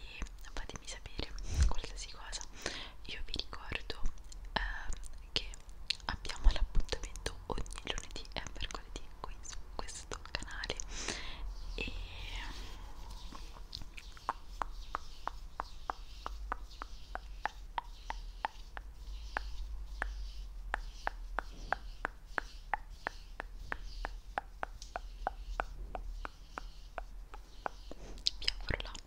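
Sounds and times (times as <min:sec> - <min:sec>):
soft breathy hiss: 0:00.0 - 0:29.0
wet mouth clicks: 0:04.1 - 0:08.9, 0:13.2 - 0:26.7, 0:27.3 - 0:29.0.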